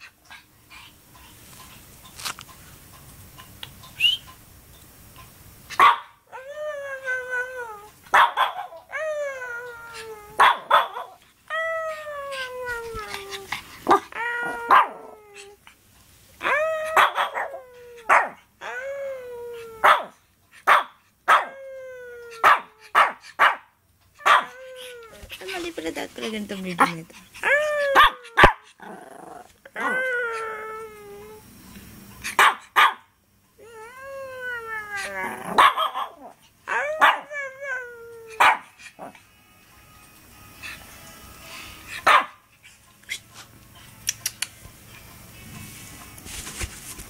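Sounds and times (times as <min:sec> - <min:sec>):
puppy barking: 0:05.8 - 0:06.2, 0:08.1 - 0:08.8, 0:10.4 - 0:11.2, 0:14.7 - 0:15.0, 0:17.0 - 0:18.4, 0:19.8 - 0:21.5, 0:22.4 - 0:24.6, 0:27.9 - 0:28.7, 0:32.3 - 0:33.1, 0:35.6 - 0:36.3, 0:37.0 - 0:37.3, 0:38.4 - 0:39.1, 0:42.0 - 0:42.4
puppy whining: 0:08.6 - 0:15.7, 0:16.4 - 0:20.1, 0:24.2 - 0:25.8, 0:26.6 - 0:31.5, 0:33.6 - 0:39.2.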